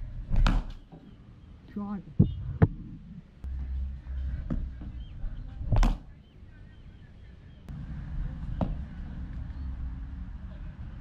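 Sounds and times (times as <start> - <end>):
cricket bat hitting ball: 0.3 - 0.8.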